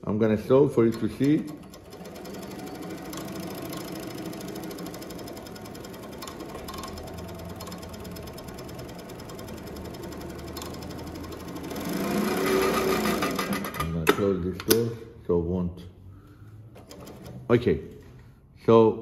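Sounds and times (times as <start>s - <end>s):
industrial sewing machine rattling: 0.5s - 14.0s, 16.8s - 17.4s.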